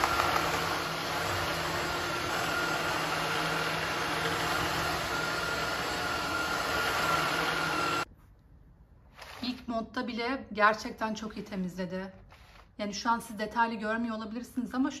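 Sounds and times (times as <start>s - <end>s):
cordless vacuum running: 0.0s - 8.1s.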